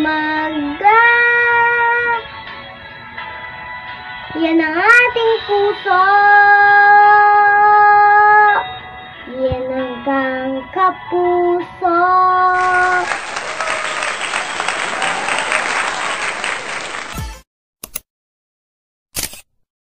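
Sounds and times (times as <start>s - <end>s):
girl singing: 0.0s - 2.2s, 4.3s - 8.6s, 9.3s - 13.0s
crowd applauding: 12.6s - 17.4s
brief click: 17.8s - 18.0s.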